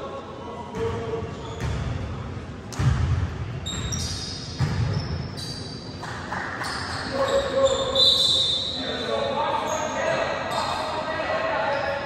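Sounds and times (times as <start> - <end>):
short high squeaks: 3.7 - 6.0, 6.6 - 10.9.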